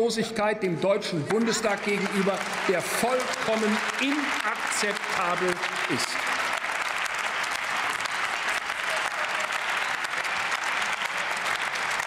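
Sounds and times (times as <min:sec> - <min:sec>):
many people clapping: 0:01.2 - 0:12.0.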